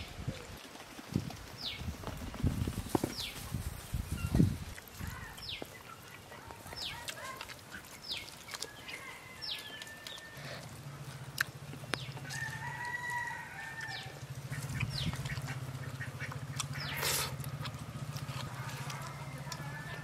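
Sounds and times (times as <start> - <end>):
small birds chirping: 0.0 - 12.8, 13.5 - 20.0
chickens clucking: 0.0 - 20.0
distant rooster crowing: 8.6 - 10.8, 12.2 - 14.2, 18.7 - 20.0.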